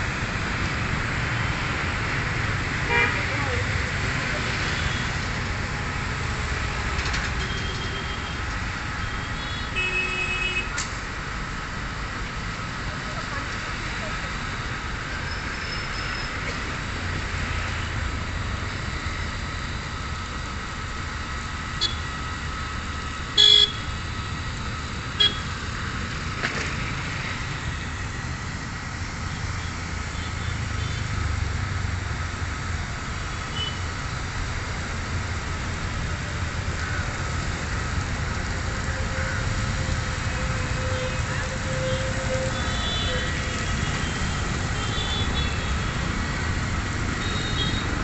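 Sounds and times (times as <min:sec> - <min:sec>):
traffic rumble: 0:00.0 - 0:48.0
vehicle horn toots: 0:02.9 - 0:03.2, 0:23.4 - 0:23.9, 0:25.2 - 0:25.5, 0:47.2 - 0:47.8.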